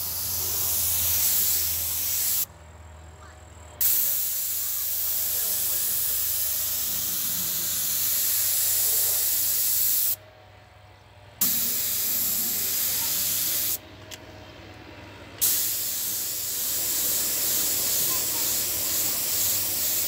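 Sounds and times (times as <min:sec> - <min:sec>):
spray gun hissing: 0:00.0 - 0:02.5, 0:03.8 - 0:10.2, 0:11.4 - 0:13.8, 0:15.4 - 0:20.0.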